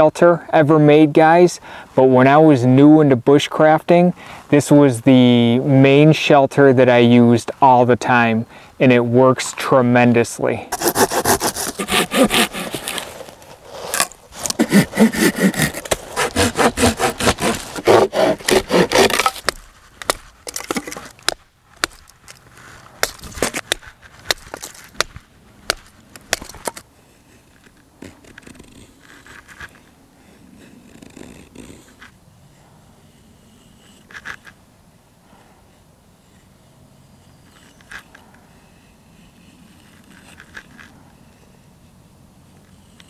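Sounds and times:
hand saw cutting a branch: 10.7 - 29.9
knife scraping wood: 10.7 - 32.2, 33.0 - 34.6, 36.2 - 41.6
sharp wooden knocks and cracks: 14.0 - 22.4, 23.0 - 26.8.

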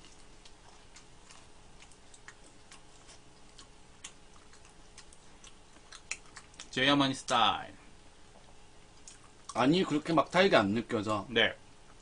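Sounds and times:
people chewing: 0.0 - 6.8, 8.2 - 10.1
faint steady hum: 0.0 - 12.0.

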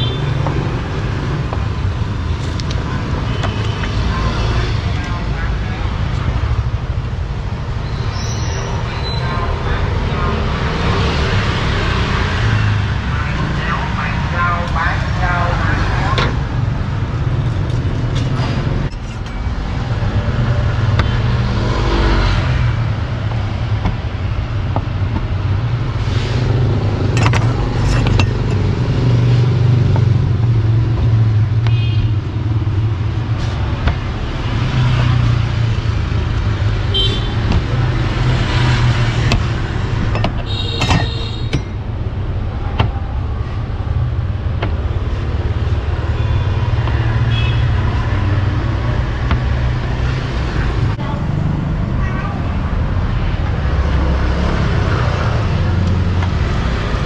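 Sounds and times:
street traffic with motorbikes: 0.0 - 57.0
sharp knocks: 22.4 - 25.5, 44.4 - 50.3.

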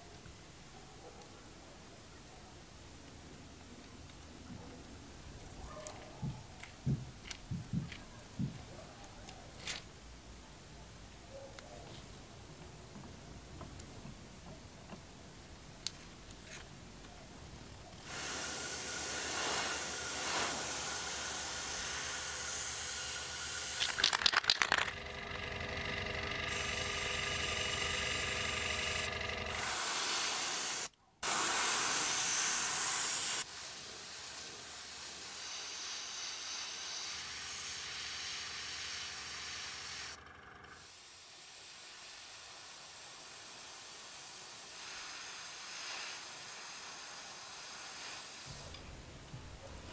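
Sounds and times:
airbrush hissing: 18.0 - 24.1, 25.0 - 40.2, 40.8 - 48.7.

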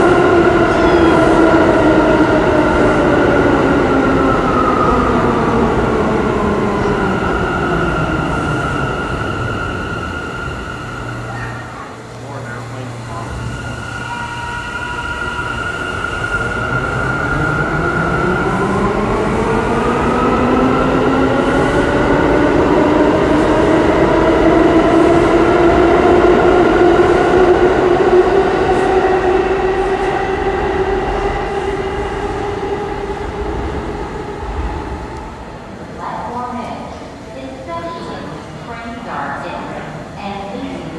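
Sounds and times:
subway traction motors whining: 0.0 - 40.9.

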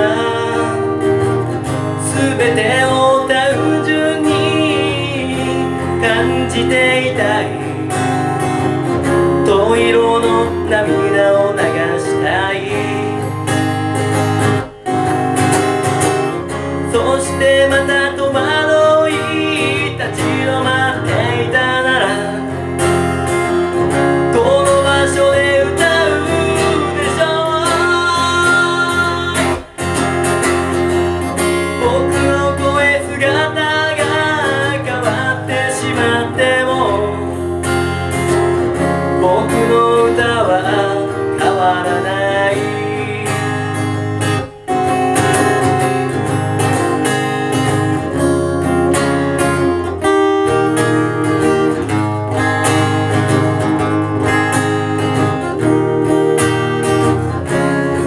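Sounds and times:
man singing: 0.0 - 15.2, 16.5 - 46.9
acoustic guitar strumming: 0.0 - 58.0.

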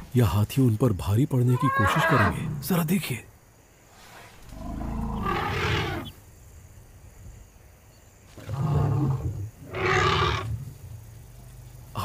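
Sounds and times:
lions growling and snarling: 4.0 - 6.2, 8.3 - 11.7.

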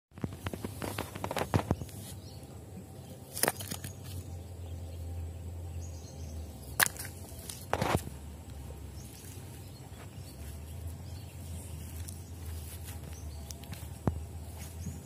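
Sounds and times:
stones and gravel clicking: 0.2 - 2.0, 3.3 - 4.3, 6.8 - 8.2
low steady rumble: 0.3 - 15.0.

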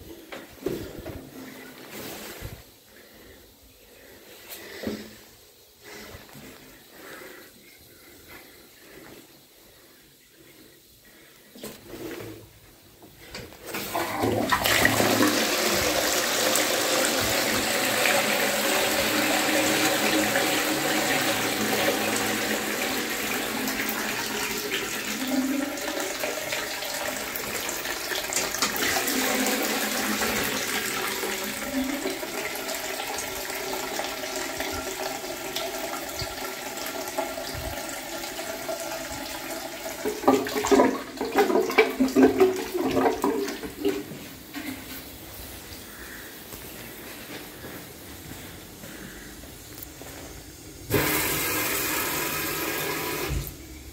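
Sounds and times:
toilet flushing water rushing: 13.3 - 44.9, 50.8 - 53.9.

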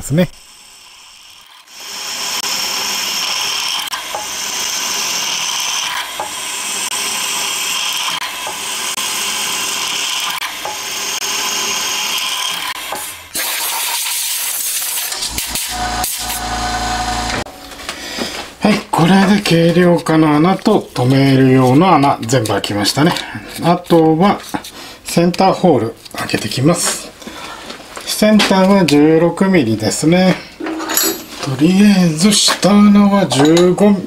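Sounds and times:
drill boring through steel: 0.6 - 17.5.

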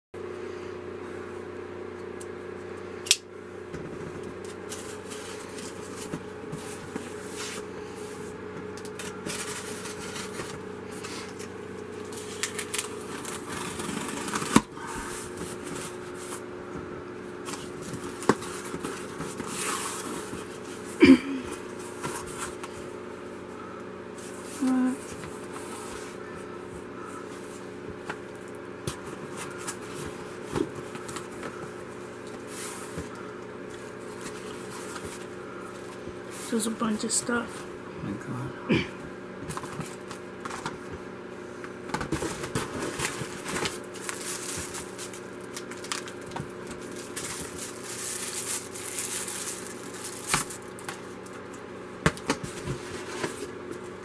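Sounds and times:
steady low hum: 0.2 - 54.0
cardboard rustling and scraping: 3.8 - 8.3, 9.0 - 16.5, 17.4 - 20.9, 21.7 - 22.9, 24.2 - 36.7, 39.4 - 41.0, 41.9 - 51.4, 52.1 - 54.0.

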